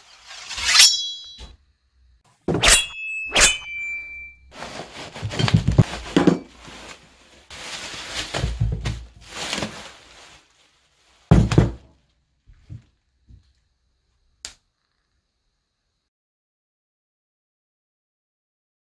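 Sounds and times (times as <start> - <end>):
parcel rustling: 3.6 - 12.0
bubble wrap unwrapping: 4.5 - 12.0.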